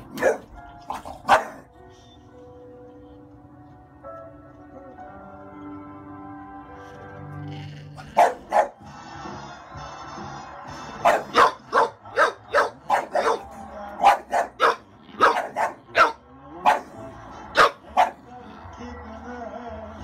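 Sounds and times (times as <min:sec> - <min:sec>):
dog barking excitedly: 0:00.0 - 0:01.7, 0:08.2 - 0:08.8, 0:11.0 - 0:18.2
music from tv: 0:00.0 - 0:20.0.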